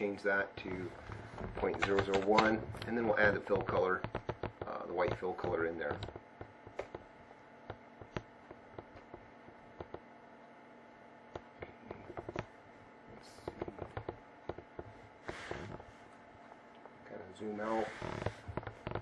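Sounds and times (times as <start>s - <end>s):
faint steady hum: 0.0s - 19.0s
computer mouse clicking: 7.7s - 10.0s.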